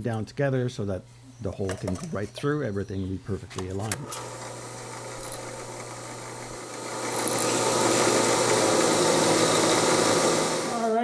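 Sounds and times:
drill press motor hum: 4.0 - 11.0
drill bit drilling metal: 4.1 - 10.9.

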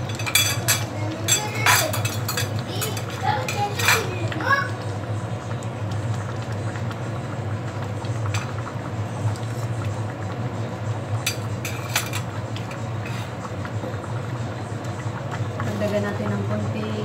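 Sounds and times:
steady low hum: 0.0 - 17.0
metal spoon stirring in pan: 11.2 - 13.5.

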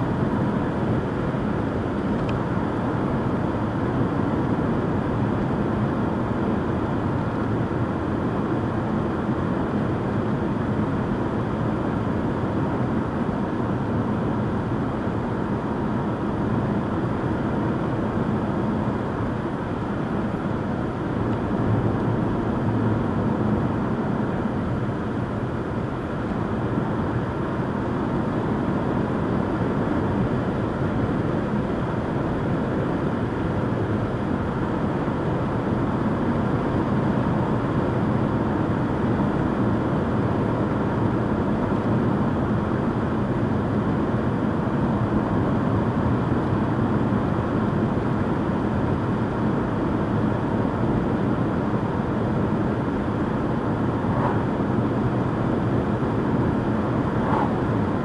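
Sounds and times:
car engine cruising: 52.2 - 58.0.

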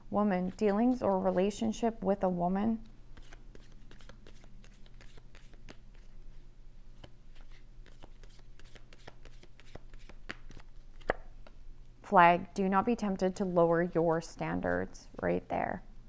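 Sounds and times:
cards being shuffled: 3.2 - 11.6.

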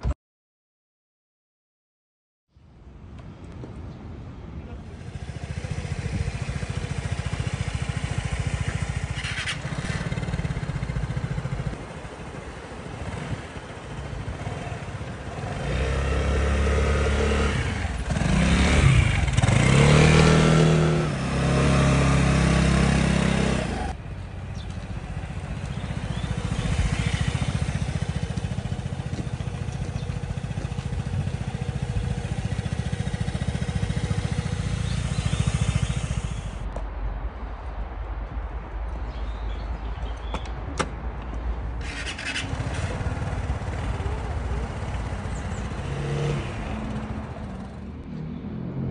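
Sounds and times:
scooter engine revving: 4.9 - 36.7, 41.8 - 48.0.

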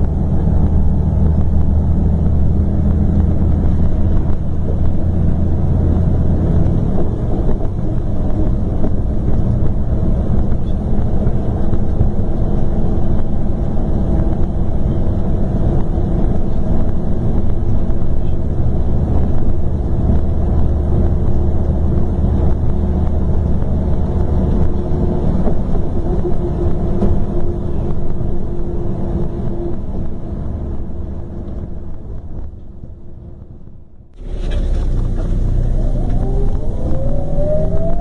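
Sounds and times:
diesel engine rumbling: 0.0 - 38.0
humming tone: 22.0 - 30.3, 34.2 - 38.0.

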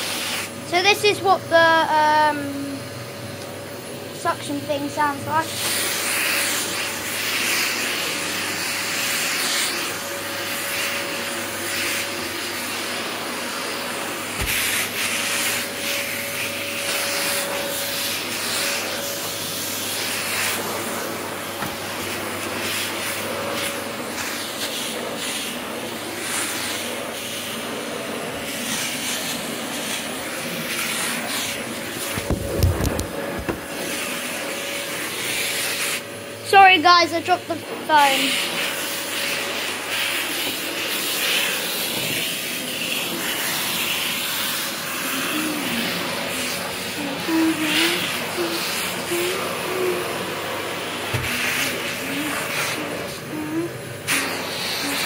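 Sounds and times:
vacuum cleaner running: 0.0 - 55.0
phone dropped thumps: 32.2 - 33.6.

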